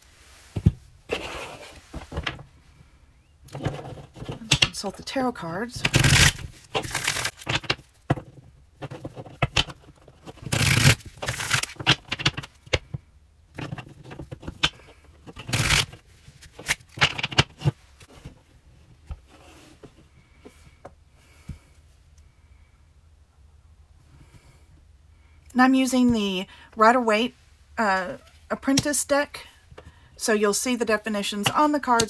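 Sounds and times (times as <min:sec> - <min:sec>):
cards riffle-shuffled: 0:05.8 - 0:07.9, 0:08.9 - 0:12.8, 0:13.6 - 0:17.8.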